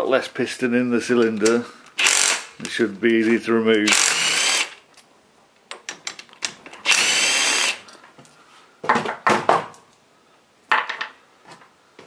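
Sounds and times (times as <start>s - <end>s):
metal parts and tools clacking: 5.7s - 6.9s
cordless power driver whirring: 6.8s - 7.8s.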